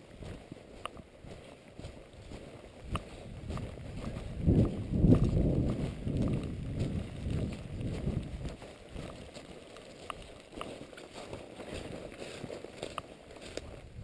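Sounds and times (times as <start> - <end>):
footsteps through dry leaves: 0.0 - 14.0
twigs snapping underfoot: 2.8 - 4.1, 7.3 - 13.8
microphone rubbing rumble: 3.1 - 9.2.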